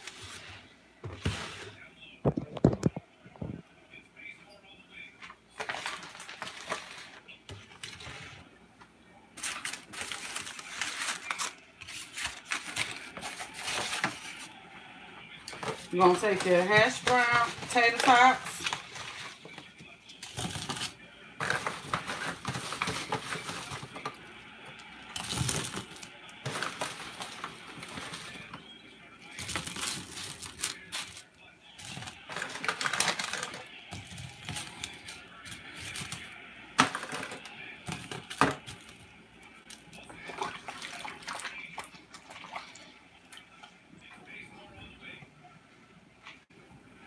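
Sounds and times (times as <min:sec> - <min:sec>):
foil pan crinkling: 0:05.6 - 0:08.2, 0:09.4 - 0:14.6, 0:15.4 - 0:39.0.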